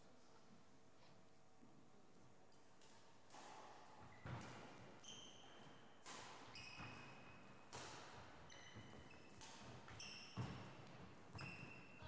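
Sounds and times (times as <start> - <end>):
racket striking shuttlecock: 6.0 - 11.4.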